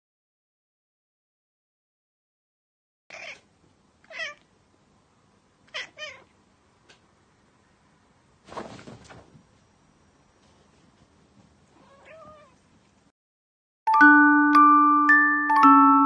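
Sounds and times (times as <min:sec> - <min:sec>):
cat meowing: 0:03.1 - 0:03.5, 0:04.1 - 0:04.5, 0:05.7 - 0:06.3, 0:11.8 - 0:12.6.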